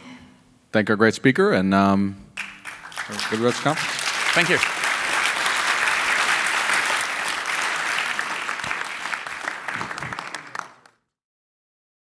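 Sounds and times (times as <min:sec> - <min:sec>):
audience applauding: 0:02.4 - 0:11.0.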